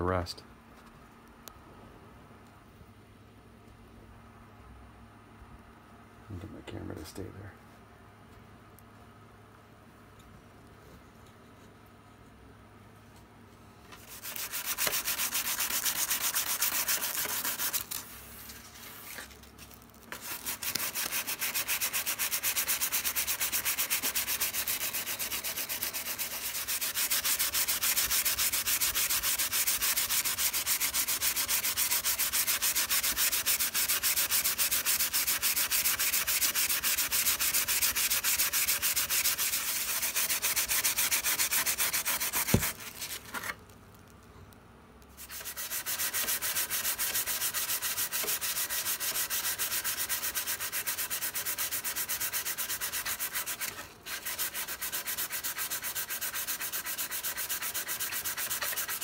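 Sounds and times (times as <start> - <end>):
sandpaper rubbing on wood: 14.0 - 18.1, 20.1 - 43.2, 45.2 - 59.0.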